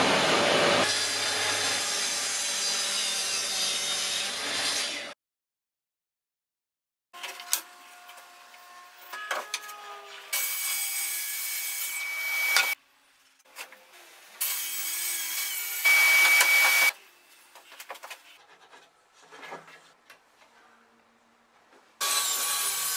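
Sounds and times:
circular saw cutting wood: 0.3s - 5.2s, 7.4s - 12.8s, 14.4s - 17.0s, 22.0s - 22.9s.

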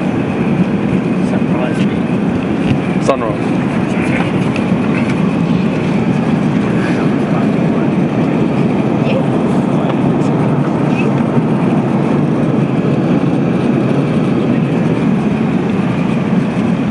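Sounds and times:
airplane cabin noise: 0.0s - 16.9s.

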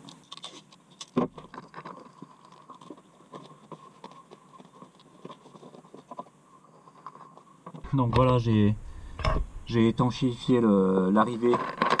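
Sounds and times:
adhesive tape crackling and rubbing: 0.0s - 7.8s.

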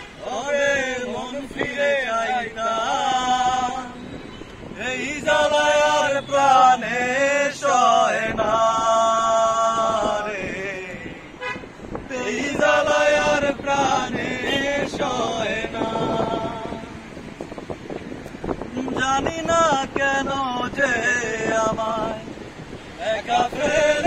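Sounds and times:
man singing: 12.1s - 17.0s, 18.7s - 22.4s, 23.0s - 24.0s.

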